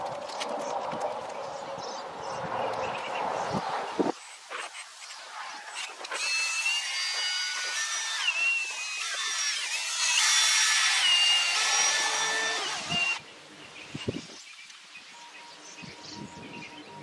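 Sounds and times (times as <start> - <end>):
cordless drill motor whine: 6.2 - 13.2.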